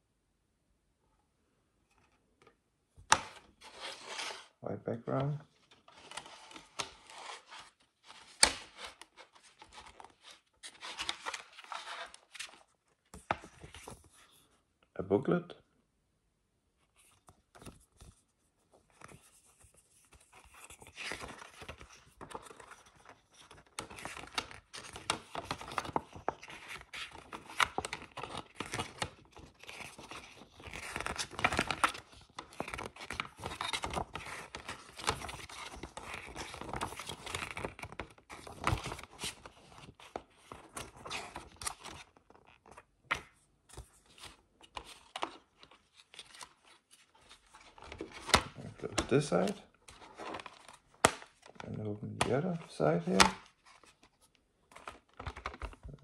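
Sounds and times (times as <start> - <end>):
paper pages rustling: 3.1 - 4.5, 5.2 - 14.5, 16.8 - 56.0.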